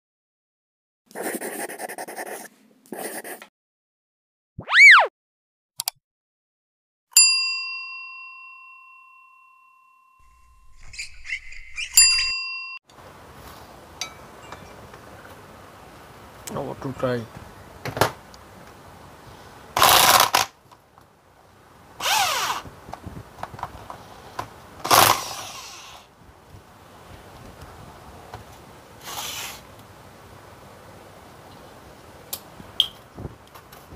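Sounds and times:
small electric motor buzzing: 22.0s - 22.6s.

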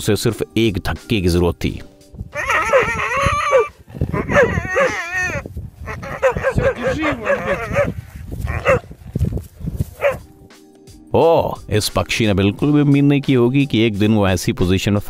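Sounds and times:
foal whinnying: 2.4s - 8.8s.

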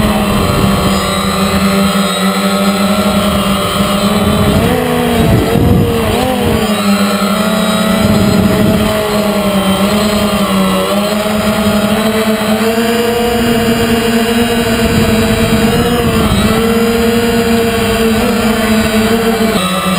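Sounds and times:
drone propellers buzzing: 0.0s - 19.9s.

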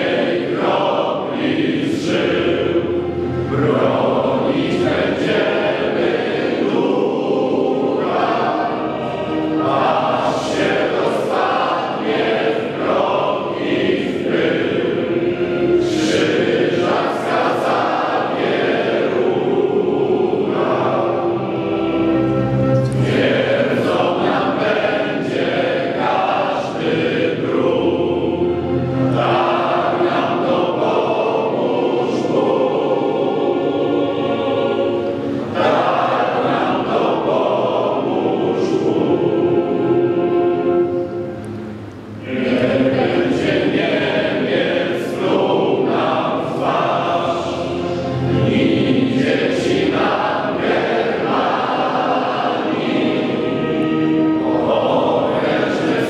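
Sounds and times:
young voices singing together: 0.0s - 56.0s.

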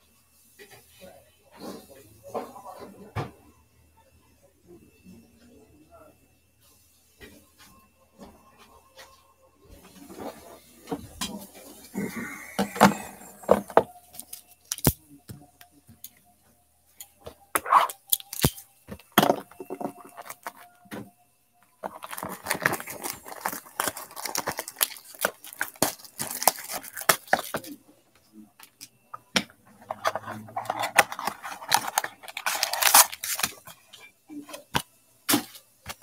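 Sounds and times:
plastic wrap crackling: 17.3s - 20.7s, 21.8s - 27.8s, 29.4s - 33.9s
box being handled: 17.6s - 20.7s, 21.8s - 27.8s, 29.4s - 33.8s
knife slitting plastic wrap: 22.0s - 27.6s, 30.7s - 33.6s.

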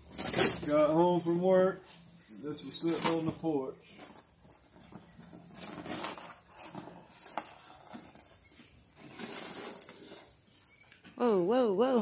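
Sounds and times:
cardboard box crinkling and rustling: 2.5s - 10.6s.

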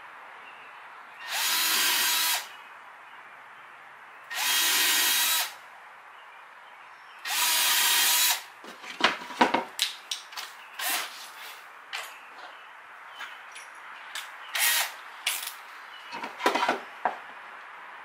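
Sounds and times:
cordless drill boring into wood: 1.2s - 2.5s, 4.3s - 5.6s, 7.2s - 8.5s, 14.6s - 14.9s.

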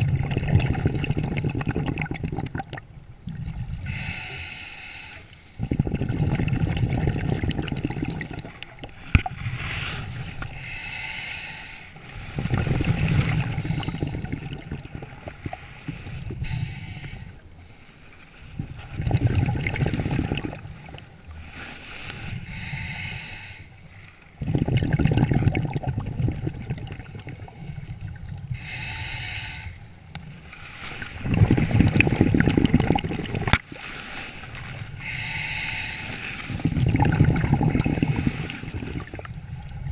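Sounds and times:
exhaled air bubbling: 0.0s - 17.9s, 18.5s - 39.9s
regulator inhale hiss: 3.8s - 5.7s, 9.5s - 12.2s, 16.3s - 18.4s, 21.9s - 24.4s, 27.0s - 30.2s, 35.0s - 36.7s.

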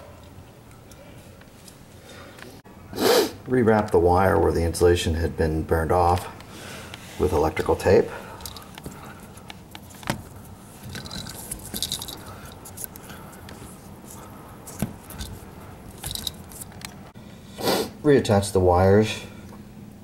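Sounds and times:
tape and wire rustling: 7.2s - 17.1s.

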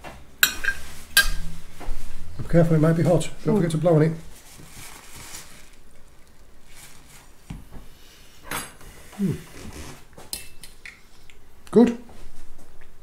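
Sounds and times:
low voiced hum: 8.9s - 10.0s.

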